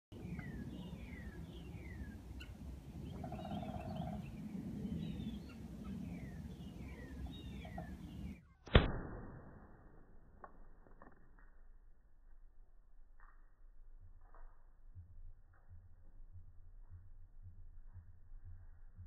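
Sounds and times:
birds chirping: 0:00.1 - 0:08.4
sharp loud pop of cannon firing: 0:08.7 - 0:09.8
low background rumble: 0:11.8 - 0:19.0.

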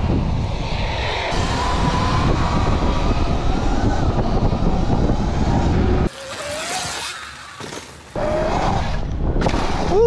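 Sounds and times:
wind buffeting microphone: 0:00.0 - 0:06.1.

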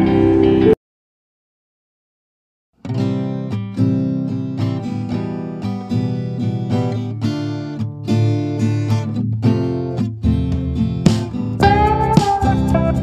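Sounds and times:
acoustic guitar music through speaker: 0:02.8 - 0:13.0.

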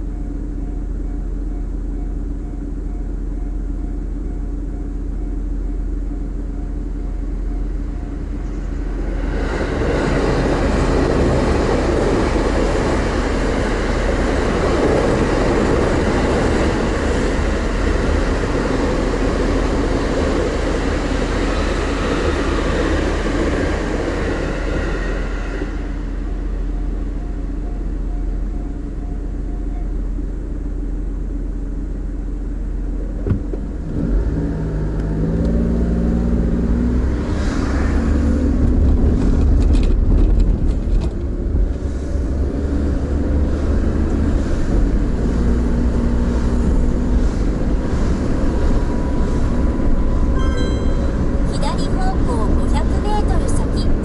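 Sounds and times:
train rumbling past: 0:00.0 - 0:31.8, 0:32.9 - 0:54.0
car engine idling: 0:00.0 - 0:36.8
car engine revving: 0:32.8 - 0:40.7.

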